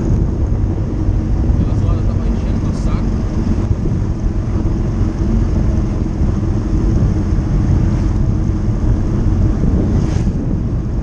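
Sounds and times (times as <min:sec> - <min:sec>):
motorcycle engine rumbling: 0:00.0 - 0:11.0.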